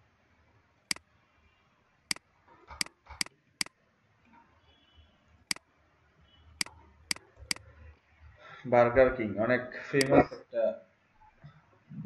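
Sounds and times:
computer mouse clicking: 0:02.1 - 0:03.8.

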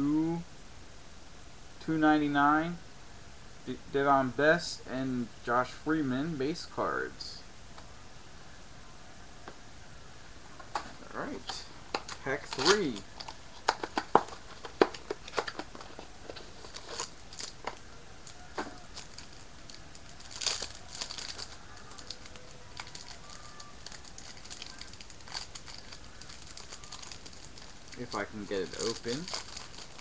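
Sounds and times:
wrapper crinkling and tearing: 0:11.9 - 0:30.0.

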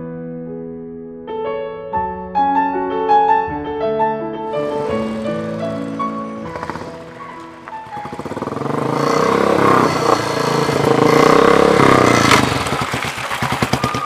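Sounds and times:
motorcycle engine: 0:04.5 - 0:14.0.

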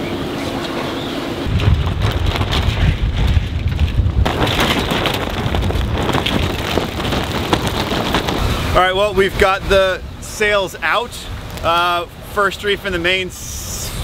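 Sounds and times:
sail flapping in wind: 0:01.4 - 0:10.0
wind buffeting microphone: 0:01.4 - 0:12.3.

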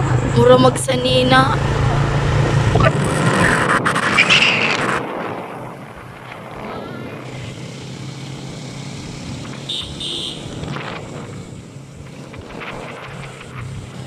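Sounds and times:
road and wind noise: 0:00.0 - 0:14.0
motorbike engine running: 0:05.6 - 0:14.0.

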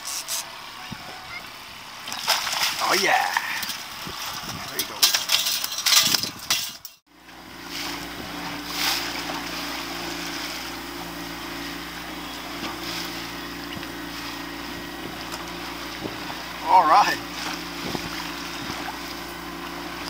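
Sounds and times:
boat motor idling: 0:00.0 - 0:06.5, 0:07.1 - 0:20.0
wind: 0:00.0 - 0:20.0
splashing and knocking: 0:02.0 - 0:07.0.

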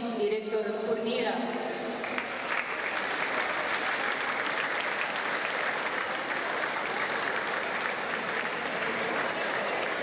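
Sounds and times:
crowd applauding: 0:02.0 - 0:10.0.

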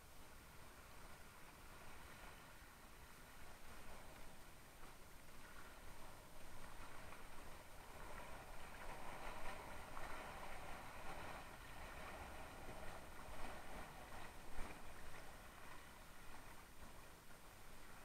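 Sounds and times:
water rushing along a hull: 0:00.0 - 0:18.0.

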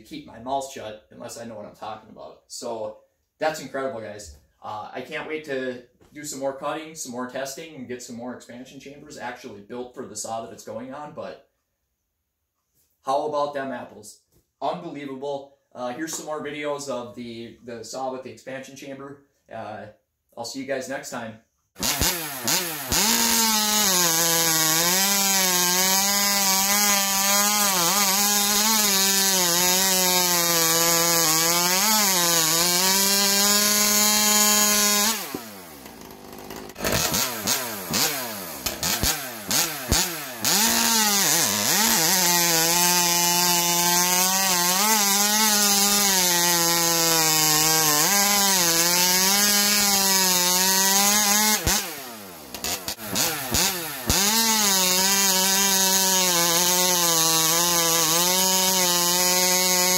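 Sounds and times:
chainsaw cutting log: 0:21.8 - 0:59.9.

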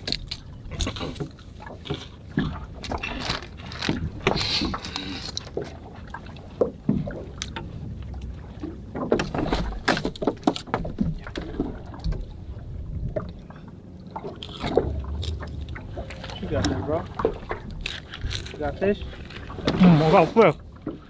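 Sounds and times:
fishing gear knocks and clicks: 0:00.0 - 0:05.8, 0:09.0 - 0:12.2, 0:14.3 - 0:19.8
water against boat hull: 0:00.0 - 0:21.0
low rumble: 0:11.2 - 0:19.9.

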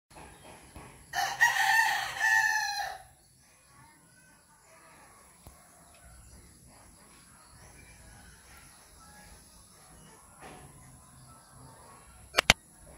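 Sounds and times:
rooster crowing: 0:01.1 - 0:03.1.

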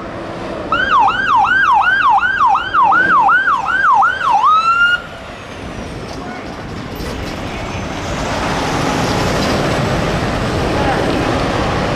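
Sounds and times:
traffic noise: 0:00.0 - 0:11.9
emergency siren yelping: 0:00.7 - 0:05.1.

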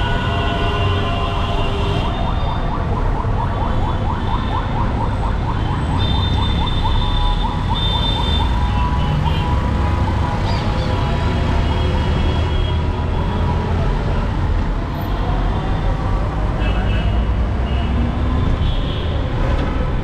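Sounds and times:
street traffic rumble: 0:00.0 - 0:20.0
vehicle siren yelping: 0:02.0 - 0:09.0.

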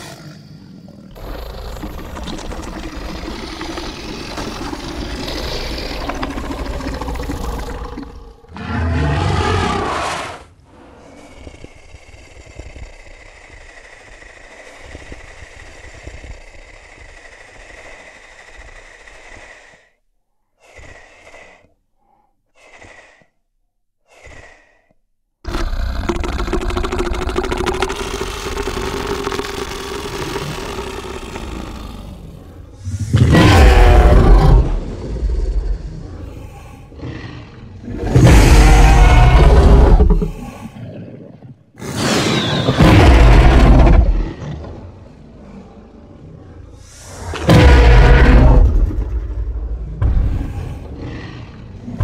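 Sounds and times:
dinosaur calls: 0:25.4 - 0:45.9.

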